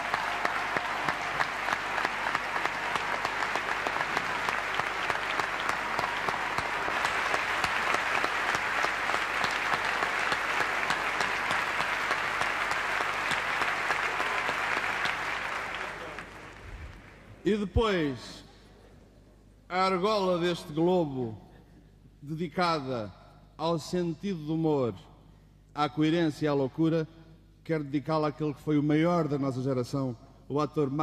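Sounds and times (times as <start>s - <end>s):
large audience applauding: 0.0s - 17.4s.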